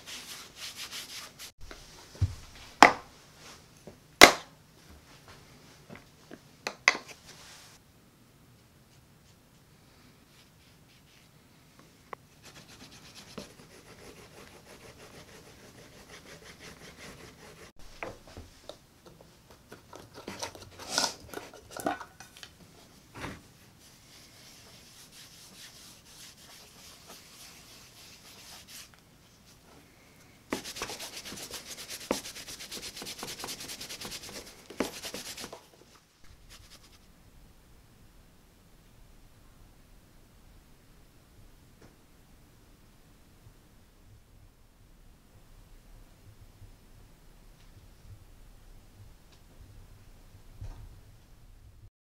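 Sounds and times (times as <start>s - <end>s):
cloth rubbing on leather: 23.8s - 29.0s, 30.5s - 37.1s.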